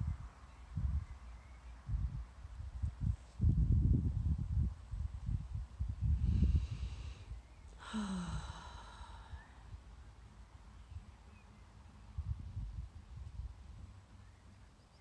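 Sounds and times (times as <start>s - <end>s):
wind buffeting microphone: 0.0s - 7.5s, 12.1s - 13.9s
woman sighing: 7.8s - 9.6s.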